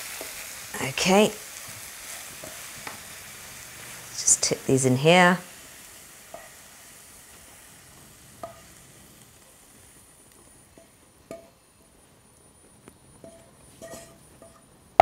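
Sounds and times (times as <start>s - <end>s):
faint sizzle: 0.0s - 15.0s
wooden spoon scraping a pan: 13.2s - 14.6s.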